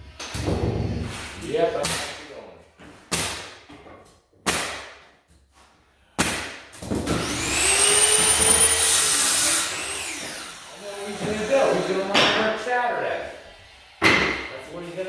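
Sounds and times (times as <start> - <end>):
pneumatic nailer bangs: 4.4 - 5.0, 6.2 - 10.4, 14.0 - 14.5
motor whining: 7.2 - 12.1.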